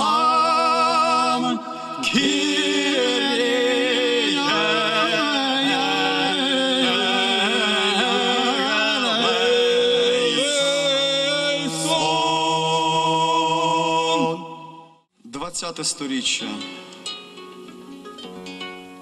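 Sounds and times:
men singing hymn unaccompanied: 0.0s - 14.7s.

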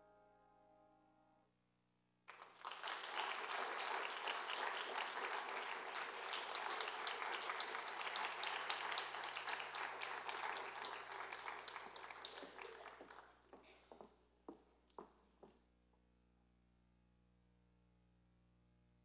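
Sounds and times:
audience applause: 2.3s - 13.8s.

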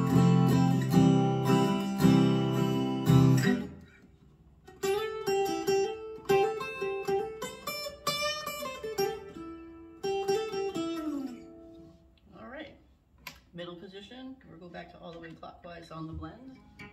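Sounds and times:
guitar picked notes: 0.0s - 12.0s.

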